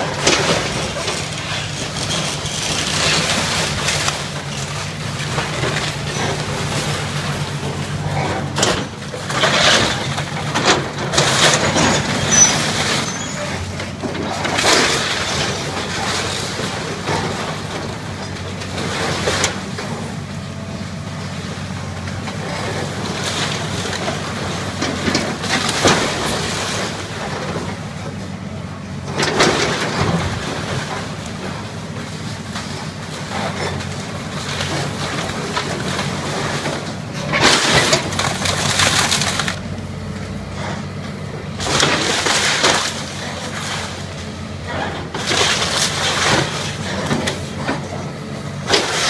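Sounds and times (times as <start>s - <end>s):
splintering timber crashes: 0.0s - 19.9s, 22.2s - 27.8s, 29.1s - 31.6s, 32.5s - 39.6s, 41.6s - 48.0s, 48.6s - 49.0s
falling debris: 0.0s - 20.1s, 22.1s - 28.0s, 29.1s - 39.9s, 40.6s - 49.0s
excavator diesel engine running: 0.0s - 49.0s.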